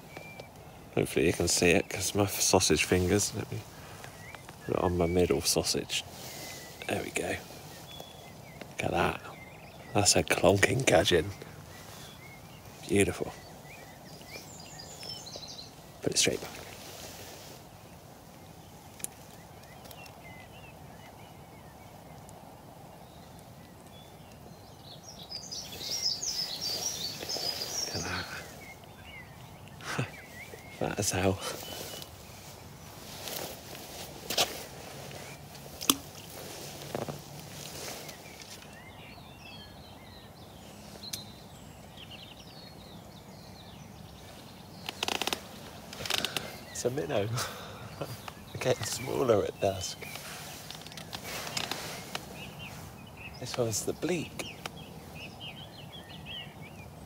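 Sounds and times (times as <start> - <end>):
low outdoor background noise: 0.0 - 57.0
small birds chirping: 0.0 - 57.0
songbird chirping and whistling: 23.2 - 42.4.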